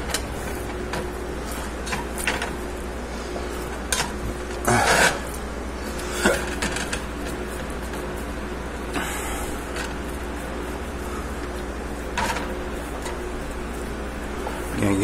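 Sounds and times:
steady low hum: 0:00.0 - 0:15.0
spatula scraping metal pot: 0:03.9 - 0:07.4.

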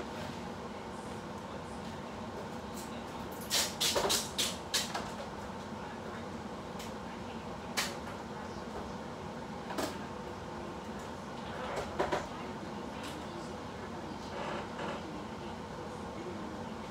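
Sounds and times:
steady room hum: 0:00.0 - 0:16.9.

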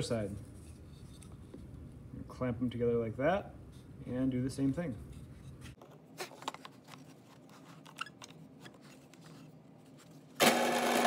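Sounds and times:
drill press motor humming: 0:10.4 - 0:11.0.

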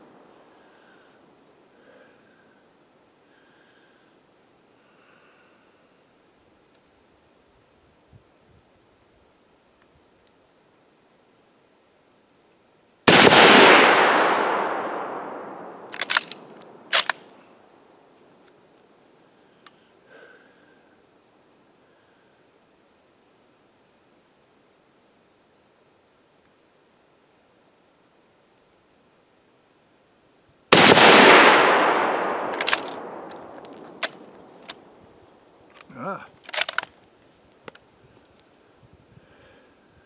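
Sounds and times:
rifle shot echoing: 0:13.1 - 0:17.2, 0:30.7 - 0:35.0
rifle bolt clicking: 0:15.9 - 0:17.2, 0:32.1 - 0:34.8, 0:36.5 - 0:36.9.

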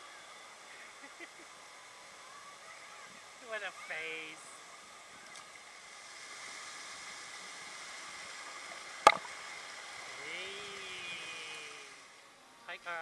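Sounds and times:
sharp knock: 0:09.1 - 0:09.3.

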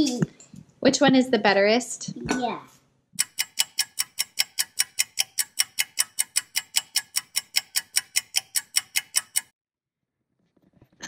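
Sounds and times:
clock ticking fast: 0:03.2 - 0:09.5.

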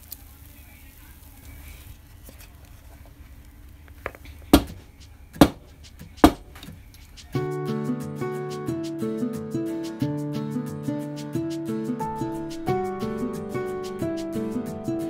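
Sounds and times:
guitar music: 0:07.5 - 0:15.0.

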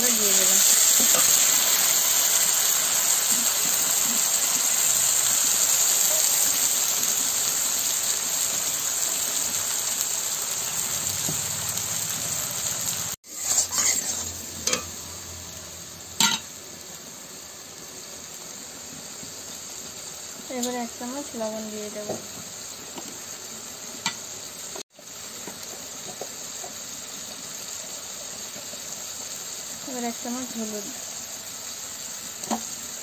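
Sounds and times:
bubbling sizzle: 0:00.0 - 0:33.0
loud sizzle of frying: 0:00.0 - 0:33.0
metal spatula stirring: 0:13.3 - 0:14.9.

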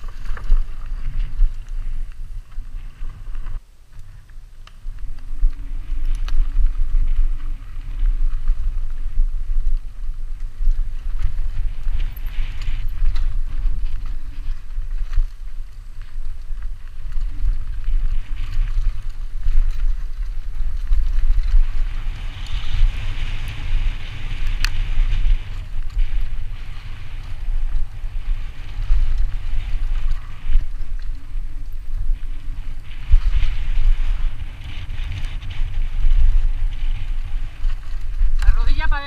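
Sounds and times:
bike rattling: 0:00.0 - 0:39.0
tyres crackling on dirt trail: 0:00.0 - 0:39.0
wind buffeting microphone: 0:00.0 - 0:39.0.

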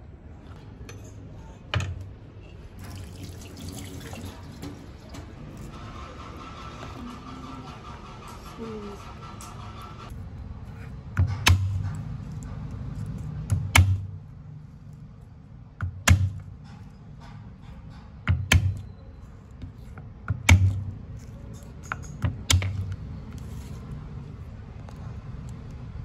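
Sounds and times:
fist striking cleaver on board: 0:13.5 - 0:14.1.

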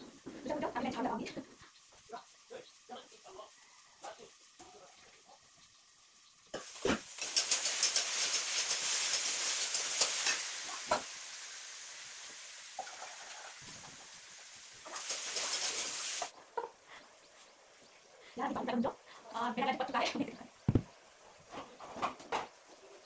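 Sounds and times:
food sizzling in hot oil: 0:00.0 - 0:16.4.

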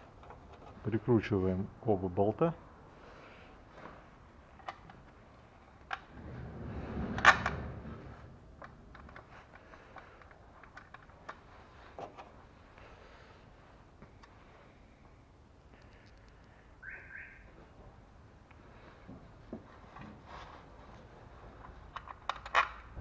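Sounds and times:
rustling: 0:18.6 - 0:23.0.

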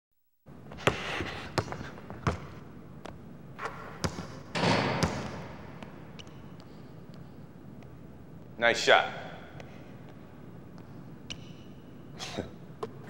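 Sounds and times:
basketball bouncing on hardwood: 0:01.6 - 0:02.5, 0:04.0 - 0:06.4.

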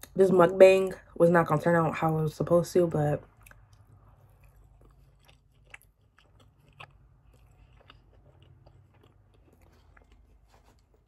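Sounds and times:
chewing crunches: 0:03.2 - 0:11.0.

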